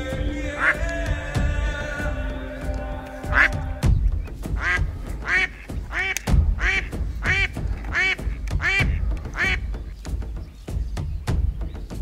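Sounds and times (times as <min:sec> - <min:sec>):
duck quacking: 0:00.3 - 0:01.0, 0:03.0 - 0:03.9, 0:04.6 - 0:09.7.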